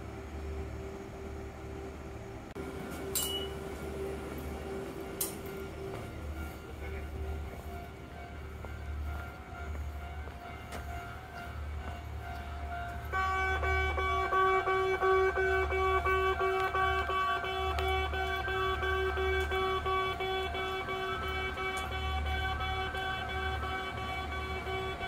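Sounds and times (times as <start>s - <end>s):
level-crossing warning bell: 0.0s - 25.0s.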